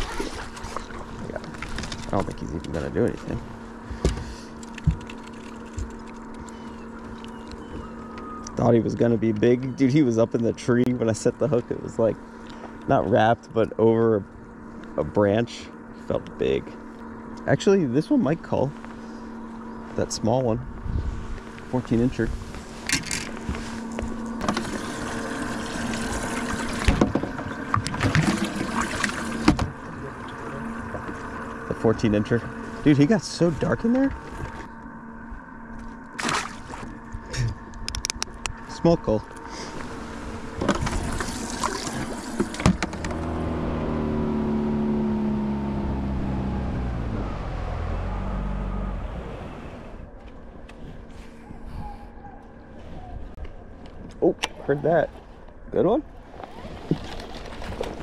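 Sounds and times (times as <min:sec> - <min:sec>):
outboard motor running: 0:00.0 - 0:52.8, 0:53.5 - 0:58.0
knocks and splashes from fish: 0:24.4 - 0:29.7, 0:36.2 - 0:36.9, 0:56.4 - 0:58.0
water running and splashing: 0:27.8 - 0:30.5, 0:40.9 - 0:42.6.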